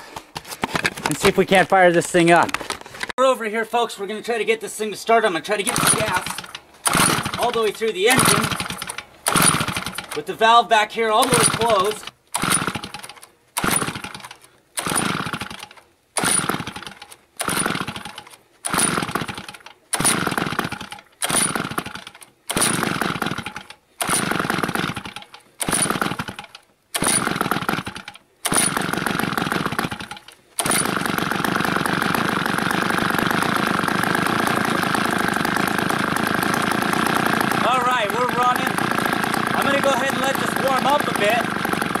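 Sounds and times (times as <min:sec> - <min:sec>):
chainsaw engine sputtering and running: 0:05.5 - 0:10.4, 0:11.2 - 0:42.0.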